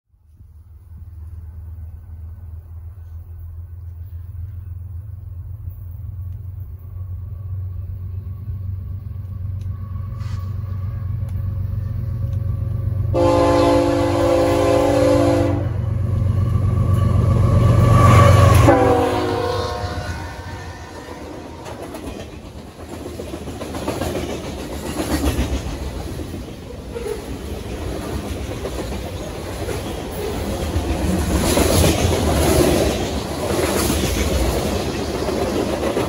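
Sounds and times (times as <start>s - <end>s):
diesel locomotive engine rumble: 0.1s - 36.0s
locomotive air horn: 13.1s - 15.8s, 18.0s - 21.8s.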